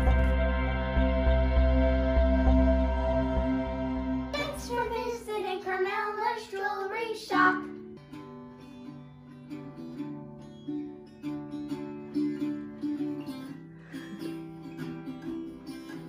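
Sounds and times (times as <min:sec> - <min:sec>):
acoustic guitar picked: 0:00.0 - 0:16.0
child singing: 0:04.4 - 0:07.7.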